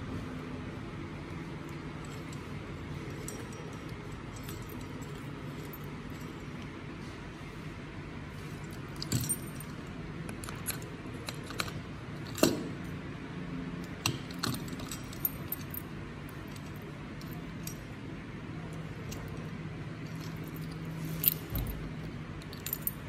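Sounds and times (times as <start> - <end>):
steady low hum: 0.0 - 23.0
keys jangling: 1.6 - 6.7, 8.6 - 12.8, 13.8 - 17.9, 18.8 - 23.0.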